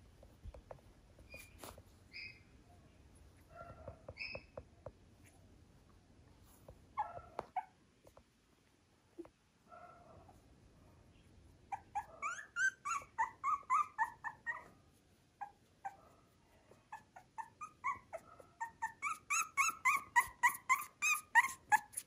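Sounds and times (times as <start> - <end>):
puppy squeaking and whimpering: 1.3 - 2.5, 3.8 - 4.6, 7.0 - 7.8, 11.7 - 14.8, 15.4 - 16.0, 16.8 - 22.0.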